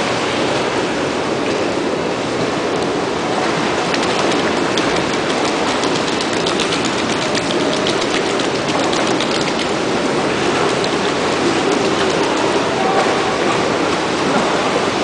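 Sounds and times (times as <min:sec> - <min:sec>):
rushing water in indoor pool: 0:00.0 - 0:15.0
small splashes and drips: 0:03.4 - 0:13.6.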